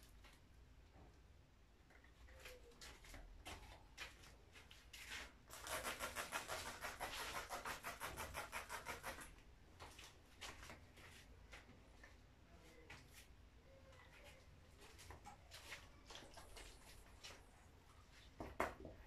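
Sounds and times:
rapid scrubbing on painted panel: 5.1s - 9.3s.

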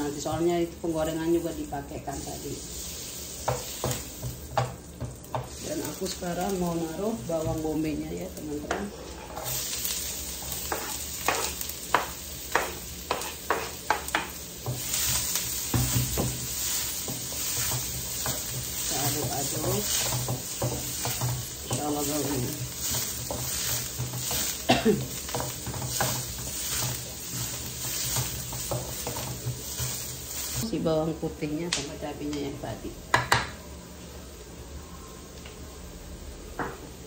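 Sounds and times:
onion sizzling in a pan: 0.0s - 37.0s
spatula scraping a pan: 8.6s - 30.6s.

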